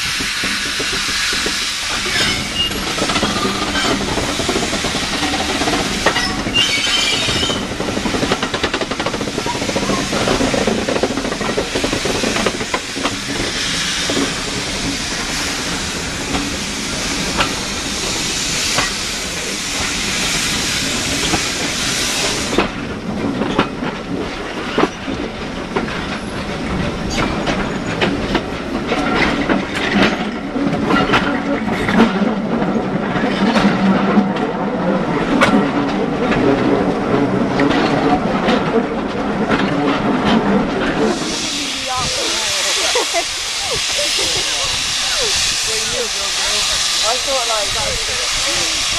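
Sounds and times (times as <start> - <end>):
steam hissing: 0.0 - 22.9, 40.6 - 48.9
train wheels clicking over rail joints: 0.0 - 48.9.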